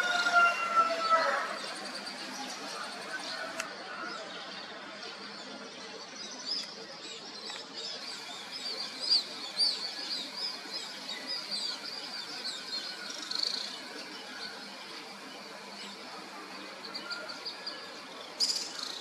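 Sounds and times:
small birds chirping: 4.7 - 19.0.

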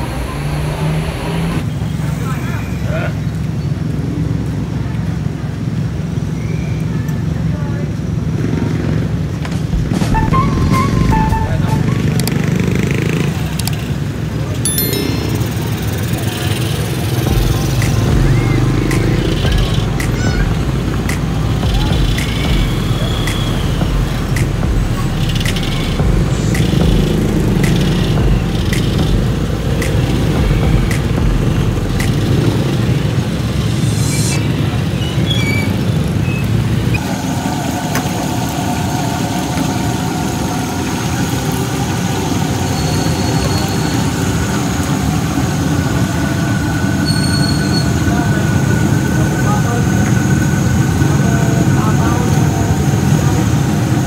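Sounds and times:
motorcycles passing: 7.2 - 47.0
low engine rumble: 15.6 - 35.0.

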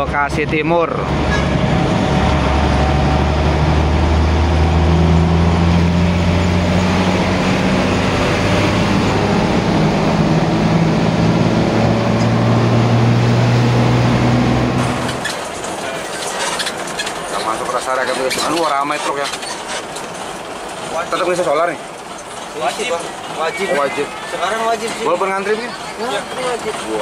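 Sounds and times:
bus diesel engine hum: 0.0 - 27.0
road noise: 0.0 - 27.0.

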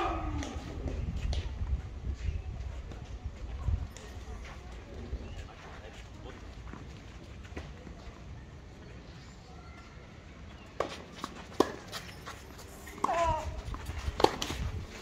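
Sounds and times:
tennis ball struck with rackets: 14.2 - 14.6.

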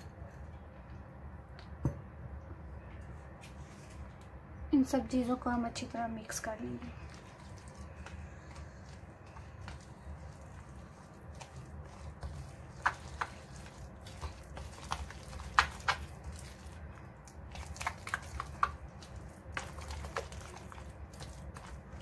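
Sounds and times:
spoon stirring wet paste: 6.6 - 22.0.

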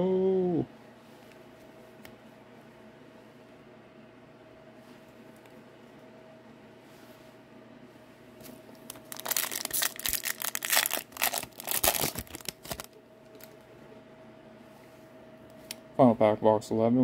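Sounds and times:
foil wrapper tearing and crinkling: 8.9 - 13.5.

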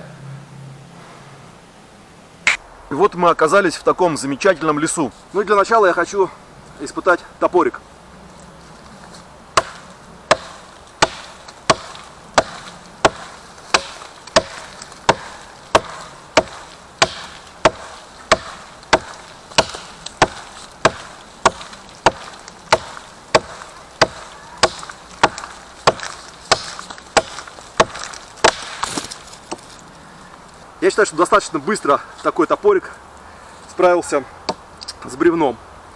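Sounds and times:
hatchet chopping log: 9.6 - 29.8.

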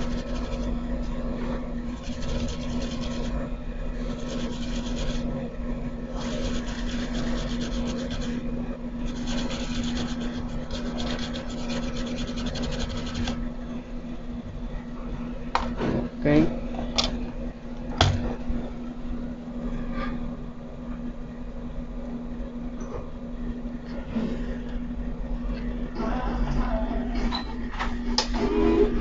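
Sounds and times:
brush scrubbing: 0.0 - 0.8, 1.9 - 5.3, 6.1 - 13.4
low hum: 0.0 - 15.5.

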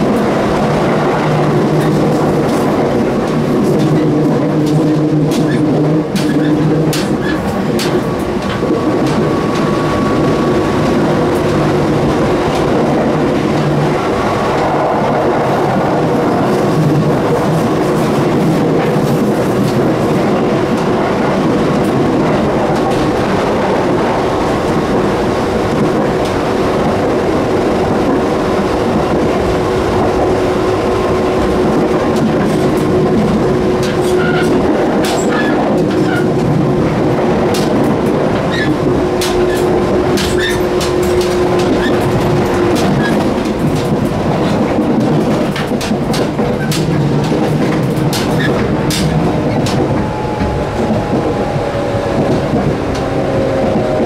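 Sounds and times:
train hum: 0.0 - 54.0
train wheels rumbling on rail: 0.0 - 54.0
sharp clicks and rattles: 37.5 - 51.4.

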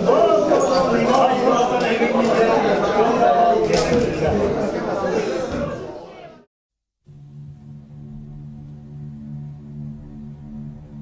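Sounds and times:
slow ambient music: 7.1 - 11.0.

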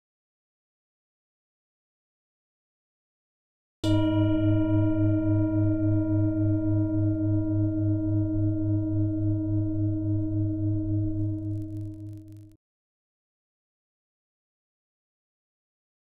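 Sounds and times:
low wavering hum: 4.0 - 12.6.

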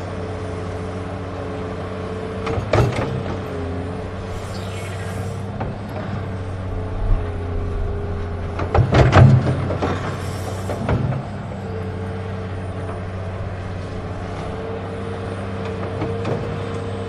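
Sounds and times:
electric motors whining: 3.8 - 8.6
low hum: 3.9 - 10.8.

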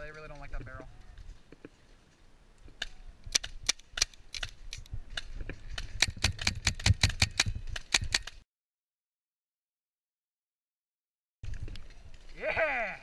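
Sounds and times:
paintball markers firing: 2.7 - 8.4.

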